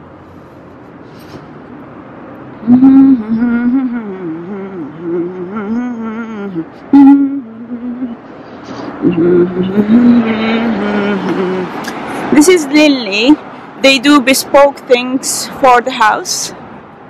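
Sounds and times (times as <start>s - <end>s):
low street background noise: 0.0s - 17.0s
woman humming a tune: 2.6s - 8.2s, 9.0s - 12.0s.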